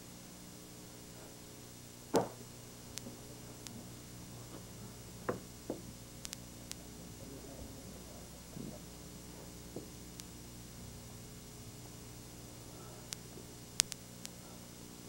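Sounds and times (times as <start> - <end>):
steady low hum: 0.0 - 15.0
sharp knocks: 2.1 - 2.4
faint ticks: 6.2 - 6.9, 9.4 - 10.4, 12.8 - 14.6.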